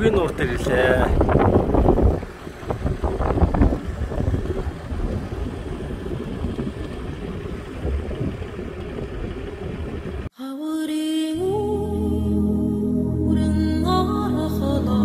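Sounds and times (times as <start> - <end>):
suv engine rumbling: 0.0 - 10.3
wind on microphone: 0.0 - 10.3
soft music: 10.8 - 15.0.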